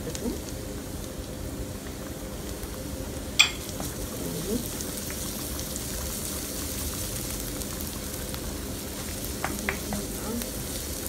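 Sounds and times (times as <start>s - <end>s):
onion sizzling in oil: 0.0s - 11.0s.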